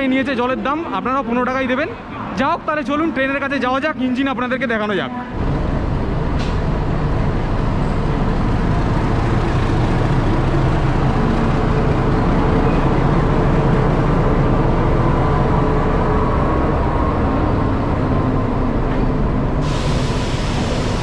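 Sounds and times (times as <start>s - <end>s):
train mechanical drone: 5.4s - 21.0s.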